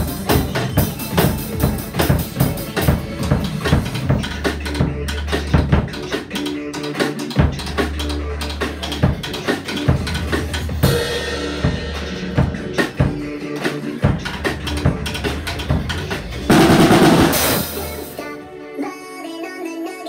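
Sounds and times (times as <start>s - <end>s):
drum kit playing a beat: 0.0s - 18.4s
recorded pop song: 0.0s - 20.0s
cymbal crash: 16.5s - 18.3s.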